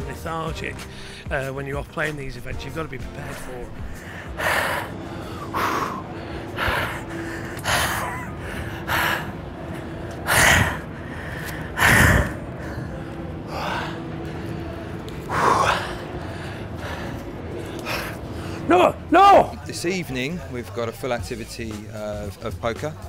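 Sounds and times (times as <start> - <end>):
man panting heavily: 0.9 - 1.3, 3.8 - 18.8.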